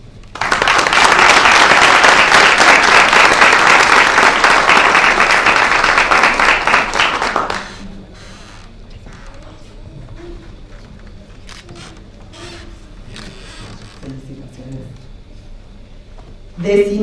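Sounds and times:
audience applause: 0:00.2 - 0:08.4.

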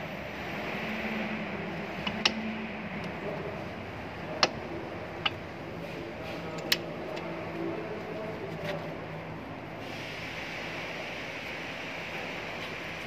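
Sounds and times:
metal brake pads clicking: 0:02.0 - 0:02.4, 0:04.3 - 0:05.6, 0:06.4 - 0:07.3.

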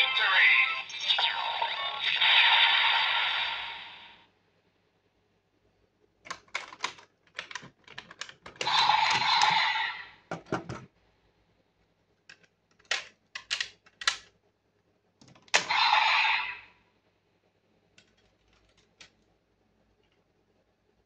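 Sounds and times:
hard plastic clicking: 0:06.2 - 0:09.2, 0:12.3 - 0:14.3.

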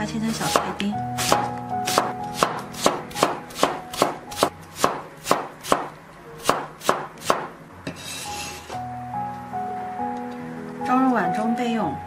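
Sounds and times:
cleaver chopping on wooden board: 0:00.4 - 0:07.5.

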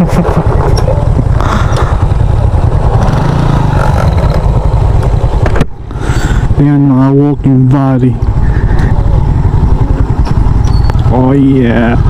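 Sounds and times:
motorbike engine rumble: 0:00.0 - 0:12.0.

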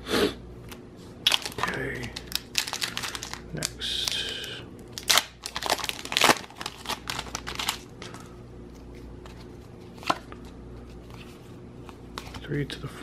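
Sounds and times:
foil wrapper crinkling and tearing: 0:01.2 - 0:08.2.

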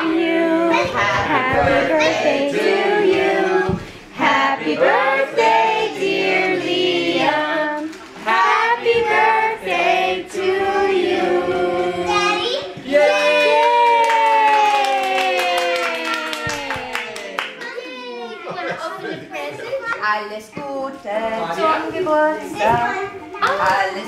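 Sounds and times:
group singing with children: 0:00.0 - 0:13.6.

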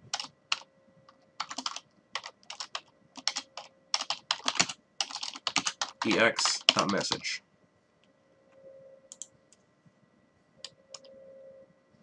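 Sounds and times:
typing on computer keyboard: 0:00.1 - 0:00.7, 0:01.4 - 0:07.2.

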